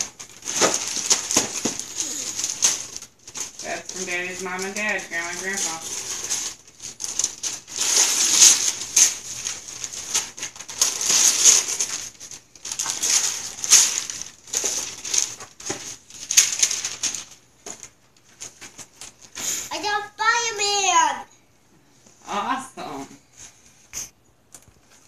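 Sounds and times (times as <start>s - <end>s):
wrapping paper ripping: 0.0s - 19.7s
faint paper rustles: 0.0s - 21.0s, 23.2s - 25.0s.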